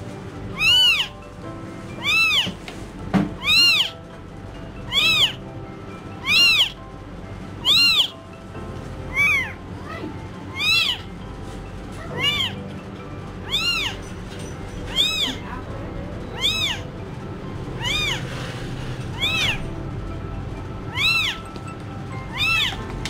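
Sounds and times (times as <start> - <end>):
newborn kitten crying: 0.5 - 1.2, 2.0 - 2.6, 3.4 - 4.0, 4.9 - 5.4, 6.2 - 6.8, 7.6 - 8.2, 9.1 - 11.1, 12.0 - 12.6, 13.4 - 14.0, 14.9 - 15.5, 16.3 - 16.9, 17.8 - 18.3, 19.2 - 19.6, 20.9 - 21.4, 22.3 - 22.8.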